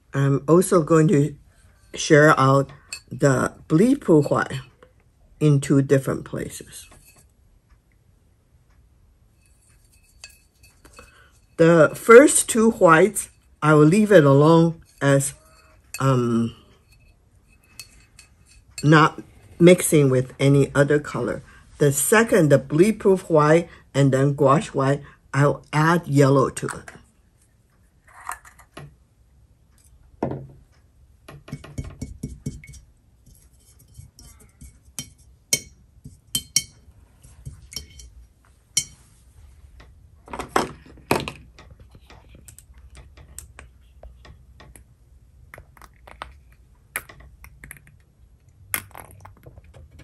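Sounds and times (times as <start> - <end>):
paint jars and brush clinking: 1.1 - 5.0, 5.7 - 7.4, 9.3 - 21.4, 31.3 - 39.2, 40.5 - 50.0.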